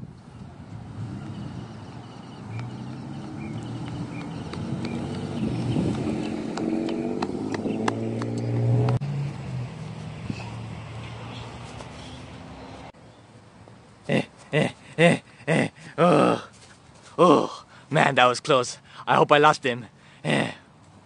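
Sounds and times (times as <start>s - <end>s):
engine revving: 0.9s - 11.4s.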